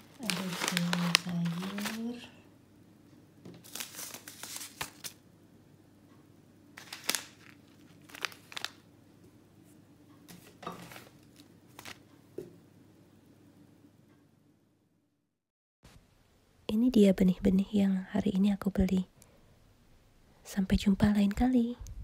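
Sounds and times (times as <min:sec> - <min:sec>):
paper packets rustling: 0:00.0 - 0:02.4, 0:03.6 - 0:05.2, 0:06.8 - 0:08.8, 0:10.3 - 0:12.0.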